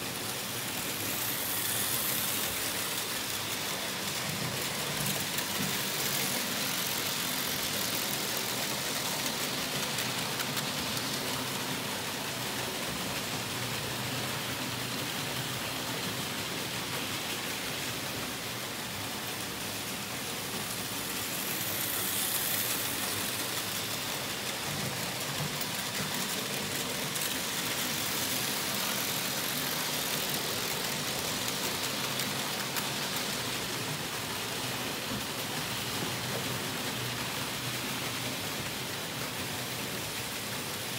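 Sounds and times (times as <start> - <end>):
model train wheels rattling on track: 0.0 - 40.9.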